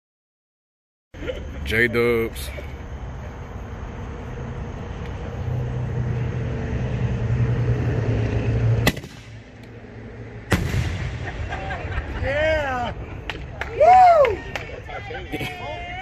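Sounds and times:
sharp bangs: 8.6 - 9.6, 10.4 - 12.0
firework shell bursting overhead: 8.7 - 9.6, 10.5 - 11.8
firework shell launching: 8.7 - 9.7, 10.5 - 11.7.

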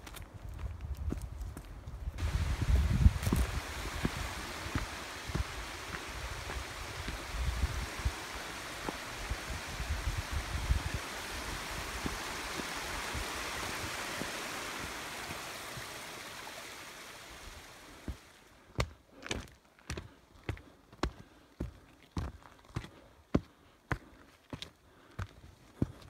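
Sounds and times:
footsteps on rocky trail: 0.0 - 15.4, 18.0 - 26.0
creek and waterfall rushing: 2.2 - 18.6.

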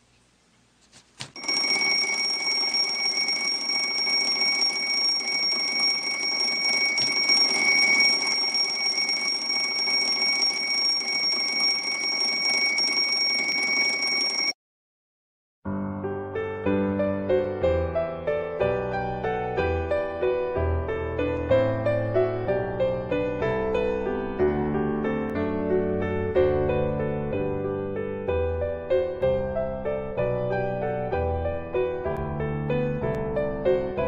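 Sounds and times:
alarm clock ringing: 1.4 - 14.6.

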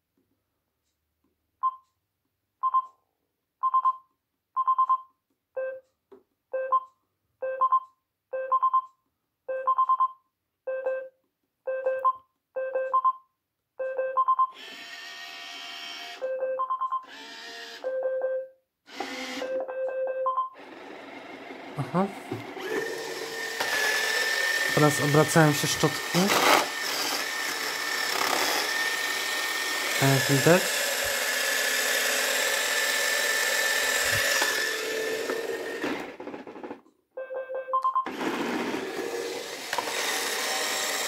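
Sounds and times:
motor whirring: 14.6 - 16.2, 17.0 - 17.9, 18.9 - 19.5, 20.6 - 36.2, 38.1 - 41.0.

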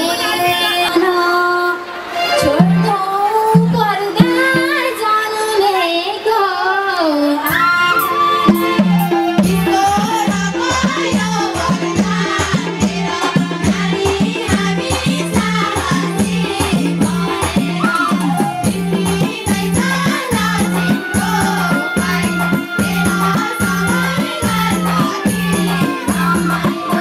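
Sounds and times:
women singing folk song: 0.0 - 27.0
drum steady beat: 7.5 - 27.0.

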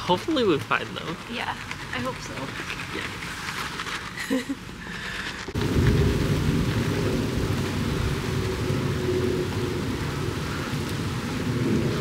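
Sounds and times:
wind buffeting microphone: 4.6 - 12.0.

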